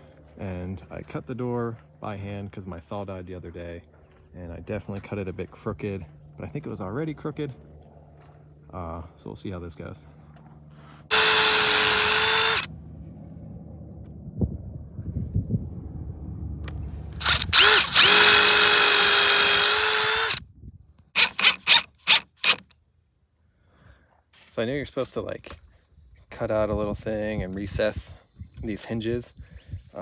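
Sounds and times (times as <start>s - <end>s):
cordless drill driving screws: 11.1s - 12.7s, 17.2s - 20.4s, 21.2s - 22.7s.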